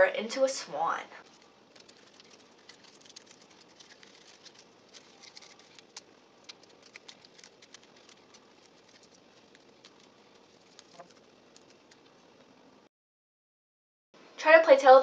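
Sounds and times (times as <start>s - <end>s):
foil wrapper crinkling: 1.2s - 12.2s.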